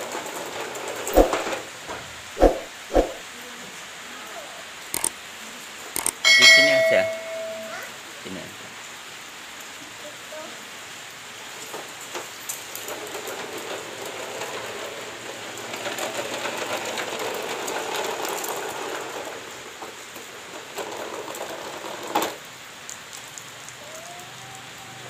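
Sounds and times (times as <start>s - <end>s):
toy wheels rattling over tiles: 0.0s - 1.8s, 11.5s - 22.5s
sharp knock: 2.4s - 3.2s.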